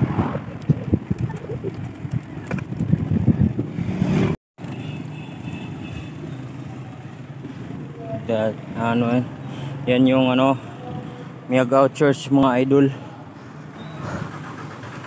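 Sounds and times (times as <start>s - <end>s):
wind buffeting microphone: 0.0s - 4.0s
vehicle and road noise hum: 0.0s - 15.0s.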